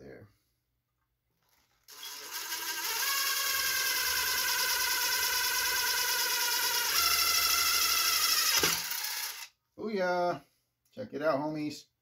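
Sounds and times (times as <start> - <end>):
cordless drill boring metal: 1.5 - 9.5.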